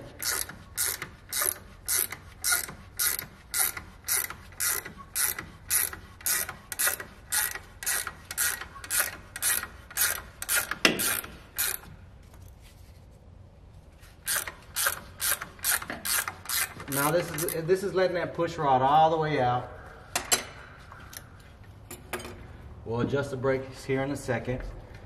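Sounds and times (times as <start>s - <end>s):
hand ratchet clicking: 0.0s - 11.9s, 14.2s - 17.6s.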